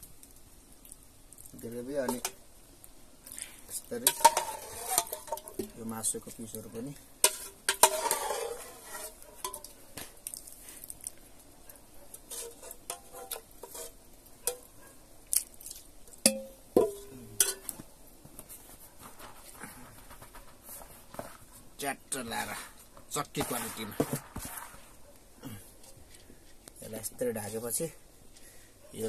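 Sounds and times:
metal spoon scraping cooking pot: 0:04.0 - 0:05.8, 0:07.2 - 0:09.8, 0:12.2 - 0:14.7.

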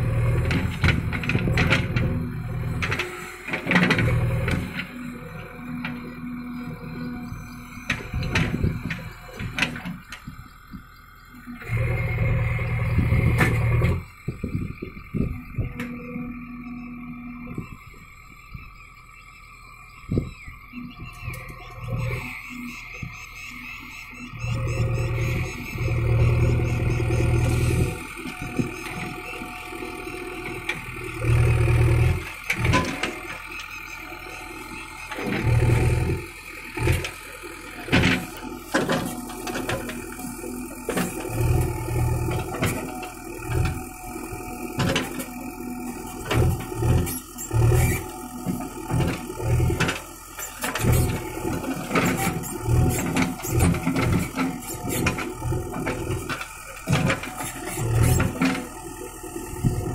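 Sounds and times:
diesel engine surging: 0:00.0 - 0:59.9.

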